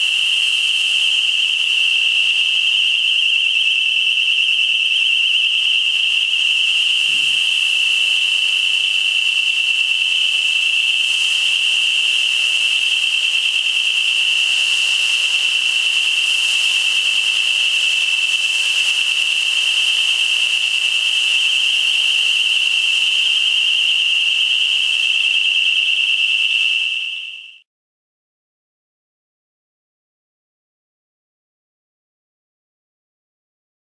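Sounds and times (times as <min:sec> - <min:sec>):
fog generator hissing: 0:00.0 - 0:26.9
alarm warbling tone: 0:03.2 - 0:08.5.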